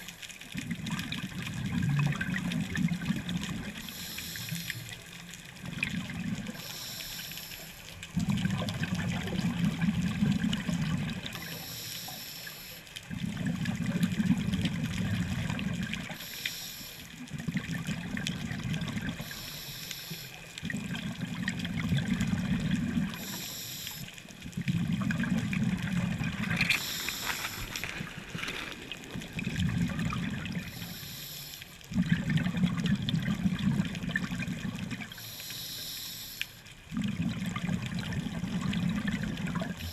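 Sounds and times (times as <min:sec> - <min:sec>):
bubbling on exhale: 0:00.6 - 0:16.4, 0:17.2 - 0:35.3, 0:36.9 - 0:39.9
regulator hiss on inhale: 0:03.7 - 0:05.0, 0:06.5 - 0:08.0, 0:11.4 - 0:12.9, 0:16.1 - 0:17.2, 0:19.2 - 0:20.6, 0:23.1 - 0:24.3, 0:26.5 - 0:28.1, 0:30.6 - 0:31.8, 0:35.1 - 0:36.6.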